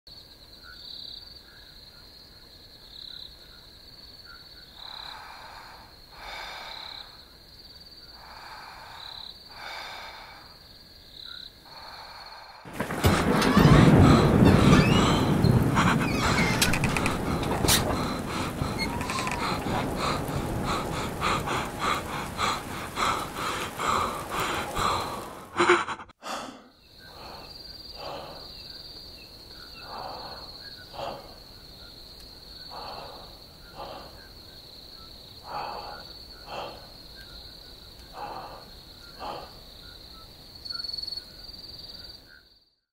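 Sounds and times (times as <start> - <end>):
crickets chirring: 0.1 - 42.8
person breathing heavily: 4.8 - 7.3, 8.0 - 10.7, 11.6 - 28.7, 29.7 - 31.8, 32.6 - 34.5, 35.4 - 37.2, 38.0 - 39.7
sudden loud burst: 12.7 - 25.7.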